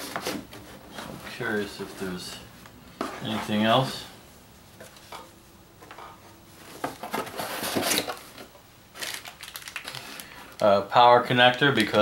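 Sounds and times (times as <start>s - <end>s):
rustling of packed items: 0.0s - 4.2s, 5.8s - 12.0s.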